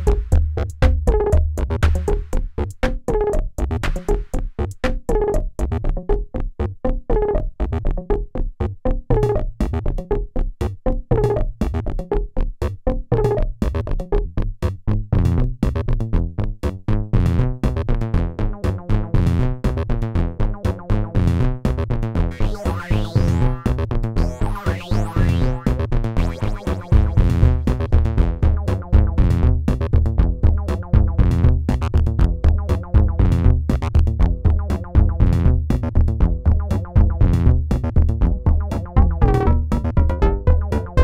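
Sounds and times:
fast synth notes with filter sweeps: 22.3 - 28.3, 38.4 - 41.0.

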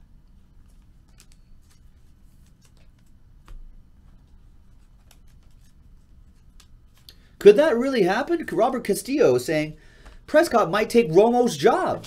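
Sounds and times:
trading cards clicking and sliding: 0.6 - 7.4.

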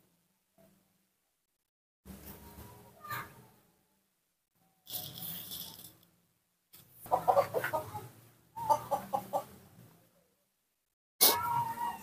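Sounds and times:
rustling: 4.9 - 6.1
animal clucking calls: 7.1 - 9.5.

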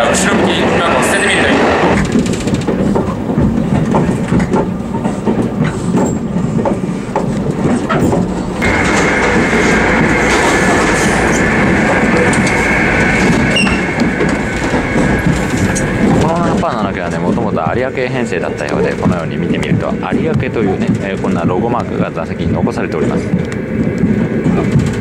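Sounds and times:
train running rumble: 0.0 - 25.0
wheel clicks over rail joints: 1.9 - 9.4
high whine: 8.4 - 20.8.

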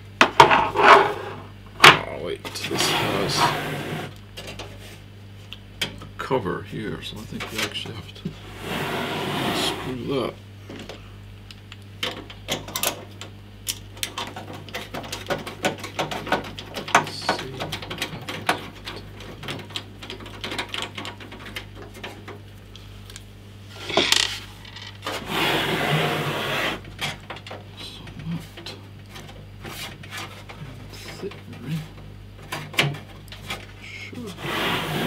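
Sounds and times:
computer case scraping on desk: 2.6 - 4.1, 8.4 - 10.1, 25.0 - 26.8, 34.3 - 35.0.

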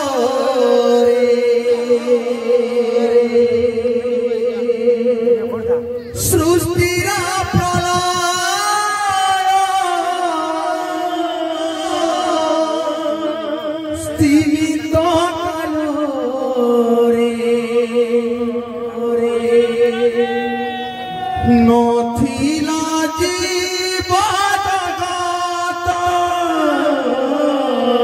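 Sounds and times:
sustained accompaniment: 0.0 - 27.6
person singing devotional song: 0.0 - 28.0
drum strokes: 6.2 - 9.8.

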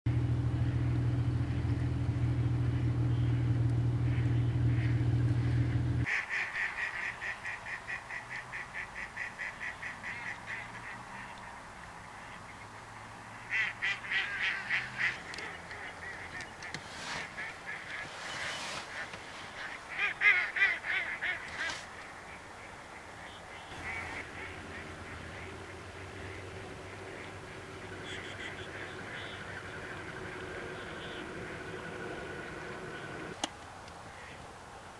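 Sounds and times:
loud low rumble: 0.1 - 6.1
waterfowl calling: 2.6 - 33.4.

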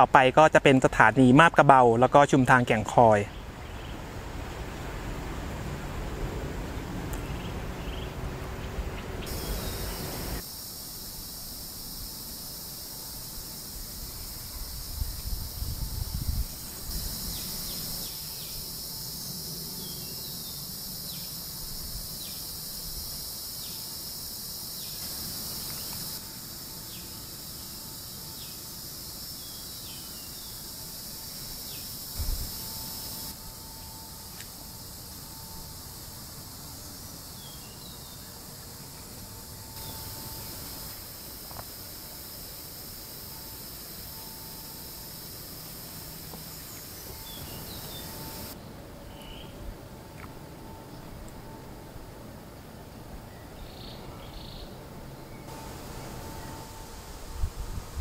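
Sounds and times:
high-pitched insect drone: 9.2 - 52.6, 53.2 - 58.0
wind rumbling on microphone: 14.0 - 18.0, 32.2 - 33.3, 55.7 - 58.0.

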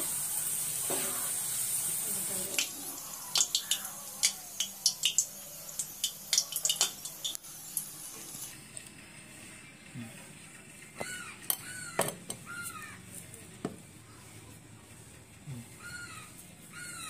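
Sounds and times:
crackles and pops of frying: 0.0 - 8.6
vegetables deep-frying in oil: 0.0 - 8.7.

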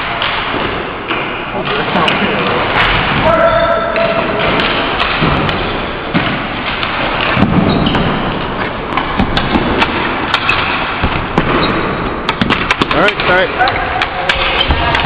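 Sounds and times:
plastic sticks and ball clacking: 6.6 - 11.6, 12.2 - 15.0.

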